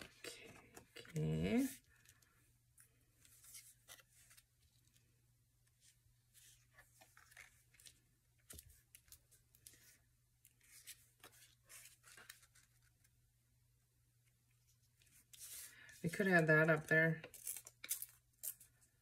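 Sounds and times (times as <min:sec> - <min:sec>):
paper rustling: 0:06.4 - 0:13.2.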